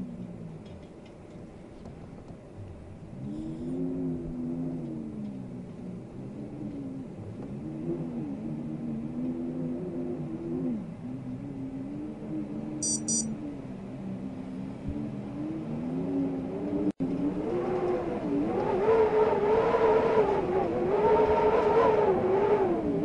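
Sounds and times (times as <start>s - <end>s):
wind whistling: 13.4s - 23.0s.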